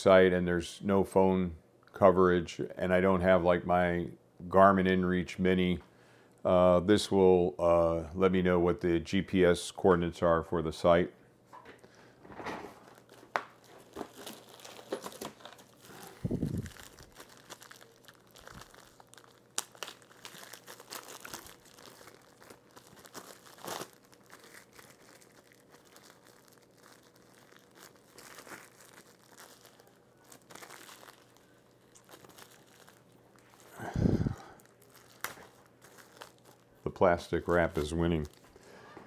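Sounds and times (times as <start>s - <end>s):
plastic wrap crinkling and tearing: 12.8s - 38.7s.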